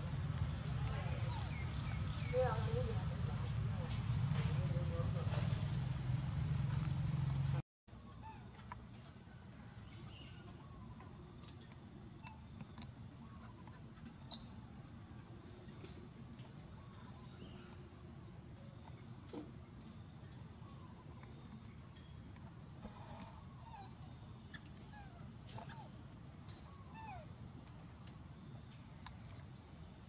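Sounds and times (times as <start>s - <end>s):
faint chirps and ticks: 8.4s - 17.7s, 18.3s - 29.9s.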